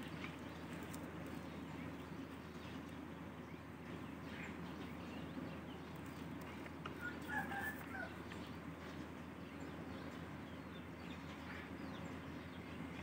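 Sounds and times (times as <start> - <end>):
bird calling: 0.0 - 8.6
faint outdoor background: 0.0 - 13.0.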